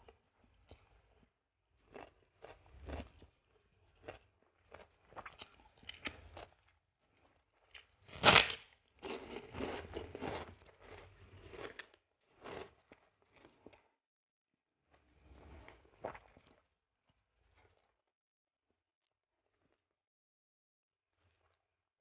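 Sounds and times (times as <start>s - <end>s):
crunchy chewing: 0.4s - 6.7s, 7.7s - 13.9s
mouth clicks chewing rice: 1.8s - 6.7s
cracker crunching: 7.8s - 13.8s.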